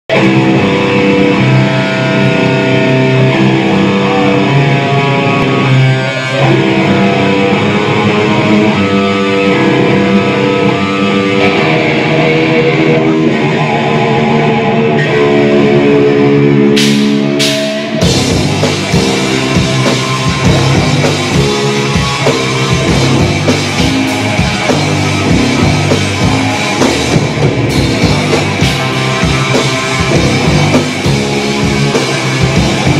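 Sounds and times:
bass guitar: 0.0s - 32.9s
electric guitars: 0.1s - 32.9s.

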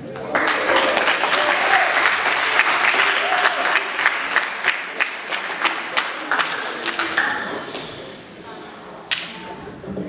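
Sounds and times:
audience applauding: 0.3s - 8.0s
voices: 0.7s - 10.0s.

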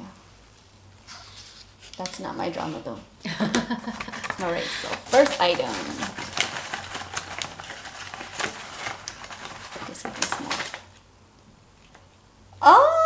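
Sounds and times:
packaging crinkling and clicking: 3.9s - 11.0s.

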